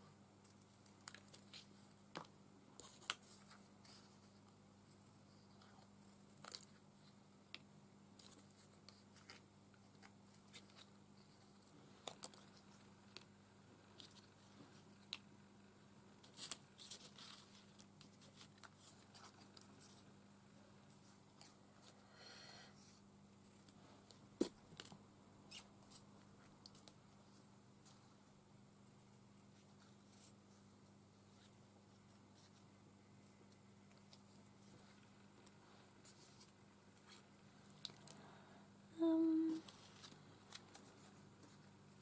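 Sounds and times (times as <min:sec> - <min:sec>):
low steady hum: 0:00.0 - 0:42.0
paper rustling: 0:16.2 - 0:20.1.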